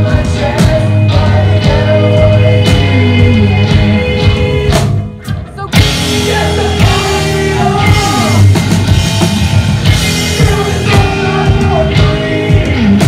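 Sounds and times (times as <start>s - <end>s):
bass guitar: 0.0s - 13.0s
drum kit: 0.0s - 13.0s
electric guitars: 0.0s - 13.0s
person singing: 5.8s - 8.6s, 9.9s - 13.0s.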